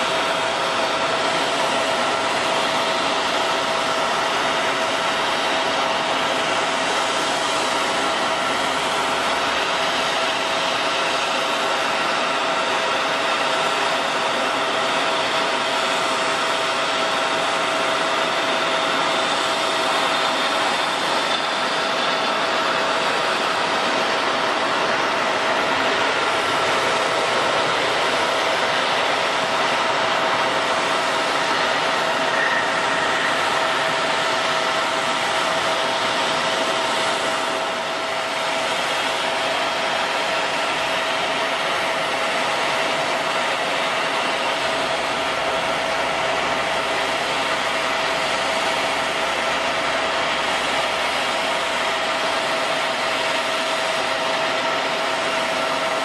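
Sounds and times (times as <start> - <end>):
jet engines running: 0.0 - 56.0
steady high tone: 18.9 - 37.8.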